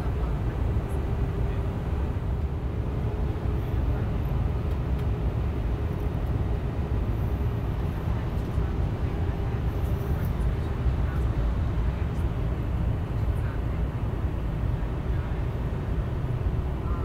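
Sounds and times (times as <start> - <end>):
airliner cabin rumble: 0.0 - 17.0
faint steady hum: 6.5 - 17.0.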